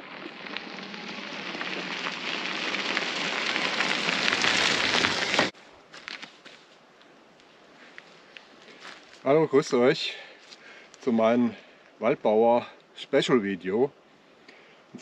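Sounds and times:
bike tyres crunching over gravel: 0.0s - 6.8s.

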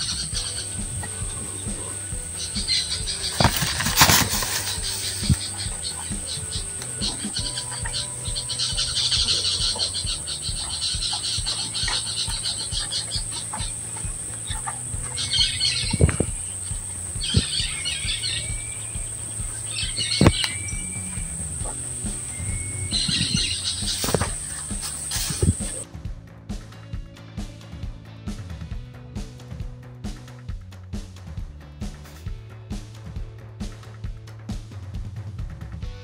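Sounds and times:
bird chirps and calls: 0.0s - 25.8s
high insect buzz: 0.0s - 25.8s.

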